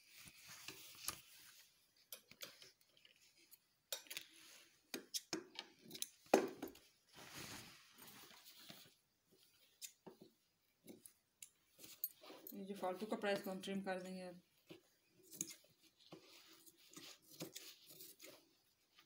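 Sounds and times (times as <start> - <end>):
fabric rustling: 0.0 - 2.0, 6.8 - 9.8, 11.7 - 13.7.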